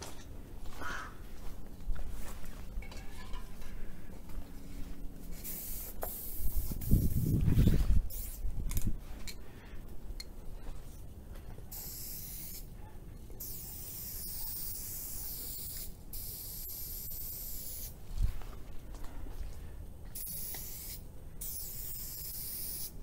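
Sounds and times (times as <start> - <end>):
spray paint can hissing: 5.3 - 8.4, 11.7 - 12.7, 13.4 - 18.0, 20.1 - 23.0.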